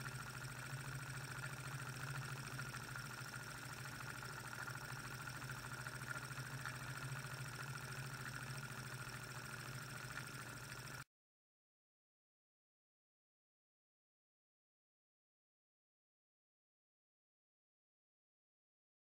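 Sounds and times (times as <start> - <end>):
model engine mechanical whir: 0.0 - 11.1.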